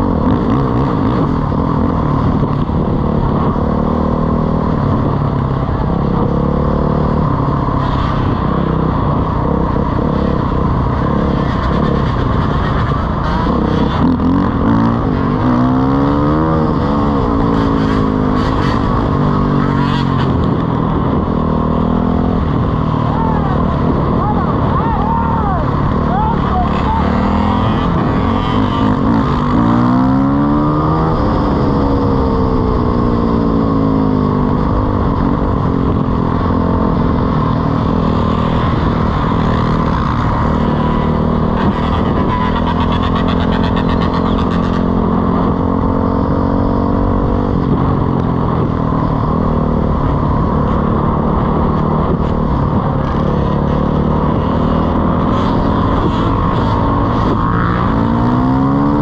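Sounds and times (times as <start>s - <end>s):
dirt bike engine revving: 25.9s - 32.6s.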